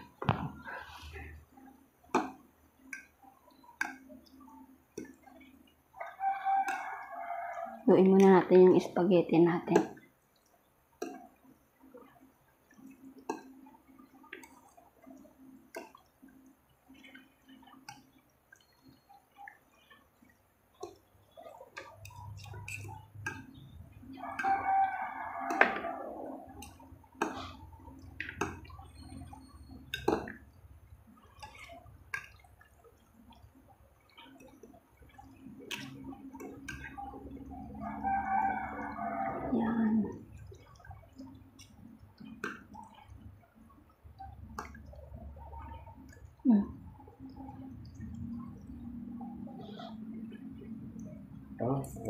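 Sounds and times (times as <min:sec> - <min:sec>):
forks clicking and scraping on plate: 0:22.3 - 0:23.5.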